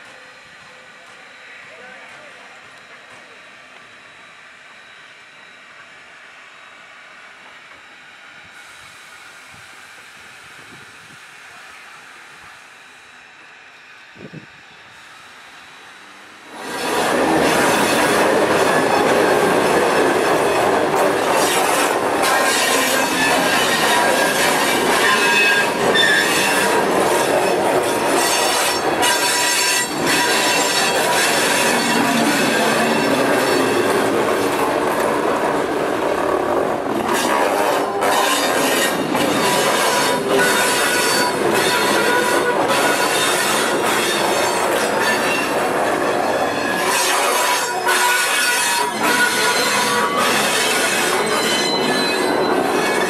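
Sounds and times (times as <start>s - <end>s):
train wheels rumbling on rails: 0.0s - 6.0s, 7.0s - 53.0s
steam locomotive hissing: 0.0s - 53.0s
wheel squeals: 16.6s - 34.2s, 37.1s - 53.0s.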